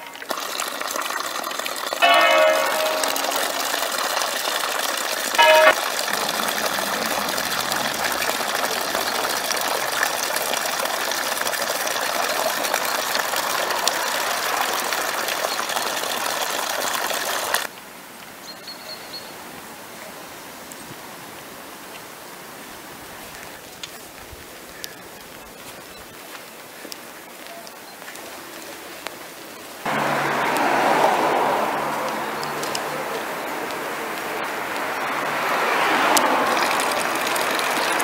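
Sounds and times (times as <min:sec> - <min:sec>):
fountain water splashing: 0:00.0 - 0:17.7, 0:20.0 - 0:38.0
church bell ringing: 0:02.0 - 0:04.7, 0:05.4 - 0:09.9.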